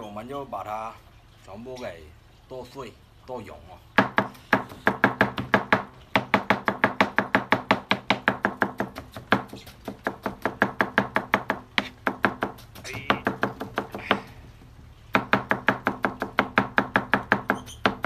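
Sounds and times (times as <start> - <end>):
knife chopping on plastic board: 4.0 - 14.3.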